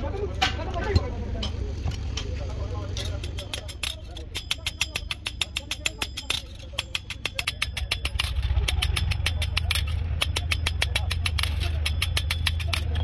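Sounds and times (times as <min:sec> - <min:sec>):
vehicle engine rumbling: 0:00.0 - 0:13.0
sharp clicks: 0:03.0 - 0:13.0.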